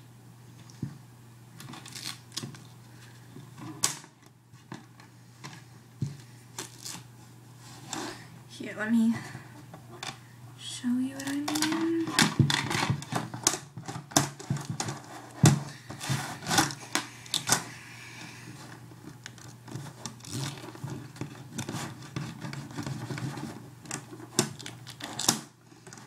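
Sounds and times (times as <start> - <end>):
duct tape crackling: 1.6 - 2.7.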